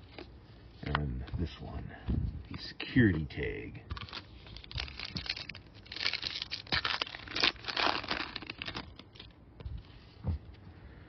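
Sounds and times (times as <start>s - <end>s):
foil wrapper tearing and crinkling: 3.9s - 9.4s.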